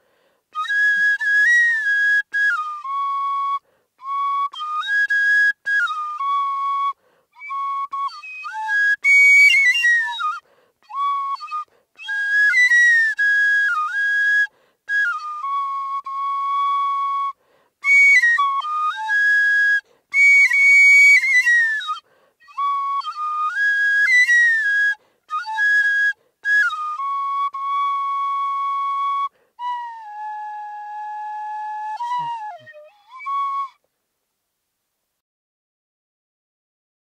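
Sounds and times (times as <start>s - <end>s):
bamboo flute melody: 0.5s - 33.9s.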